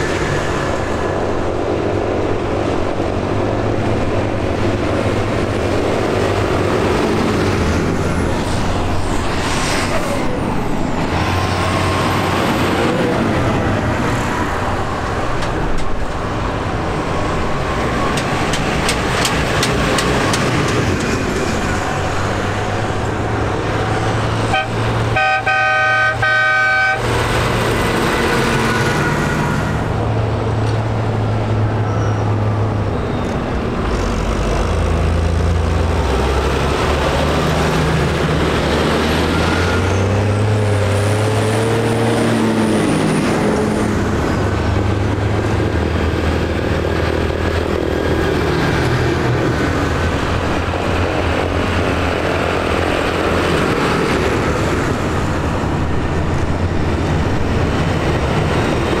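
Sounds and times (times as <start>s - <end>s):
tractor diesel engines running: 0.0s - 59.0s
vehicle horn: 24.5s - 27.1s.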